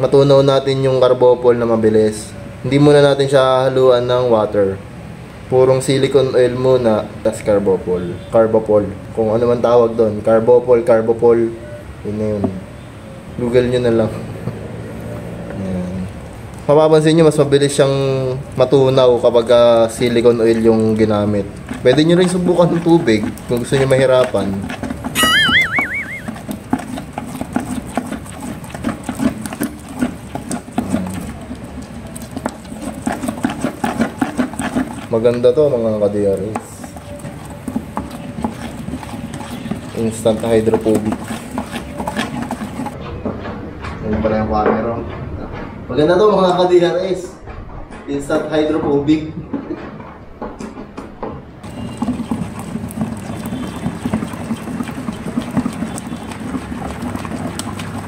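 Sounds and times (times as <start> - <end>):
churning swish of stirring: 16.1 - 43.0, 51.6 - 58.0
stick scraping in plastic bucket: 18.9 - 25.2, 26.0 - 43.0, 51.6 - 58.0
rod knocking bucket: 36.4 - 43.0.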